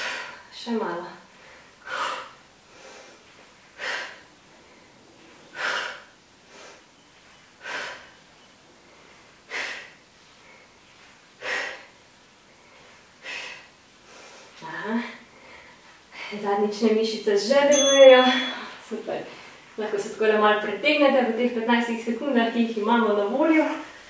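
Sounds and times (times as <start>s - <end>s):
faint breaths: 1.2s - 16.5s.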